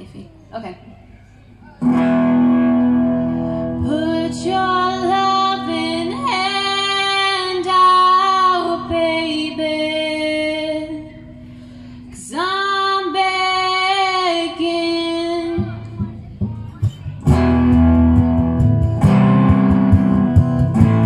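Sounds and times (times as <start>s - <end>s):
quiet guitar: 0.0s - 21.0s
woman singing into microphone: 3.4s - 11.4s, 12.1s - 16.1s.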